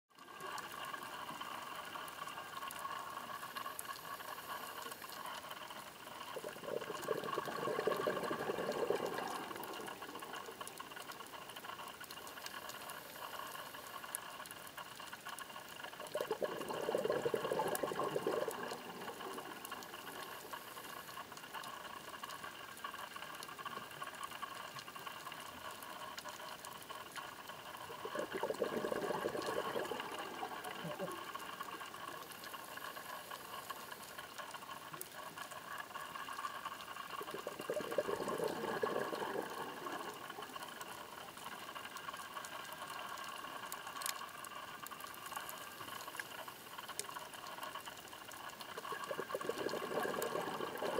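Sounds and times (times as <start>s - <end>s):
underwater background noise: 0.1s - 50.9s
diver's exhaled bubbles: 6.3s - 10.6s, 16.1s - 20.8s, 27.8s - 32.0s, 37.2s - 41.3s, 48.8s - 50.9s.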